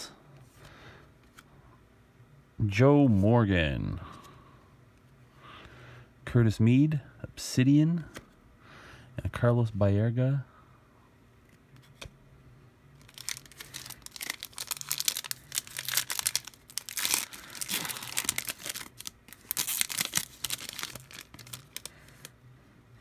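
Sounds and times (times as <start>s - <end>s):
faint low hum: 0.0s - 23.0s
plastic wrapper crinkling and tearing: 13.0s - 22.3s.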